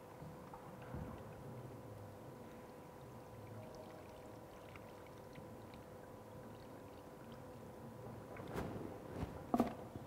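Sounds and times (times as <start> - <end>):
water trickling from a bottle: 2.3 - 7.8.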